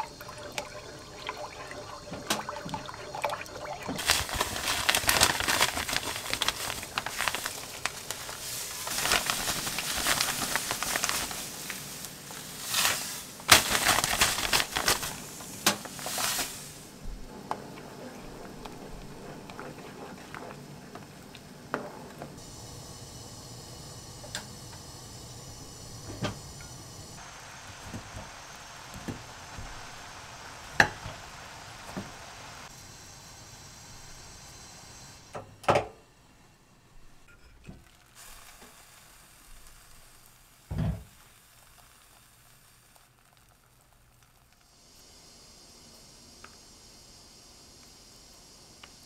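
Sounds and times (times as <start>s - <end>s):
sugar poured into liquid: 0.0s - 16.9s
wooden spoon stirring: 0.3s - 13.9s, 14.5s - 22.4s.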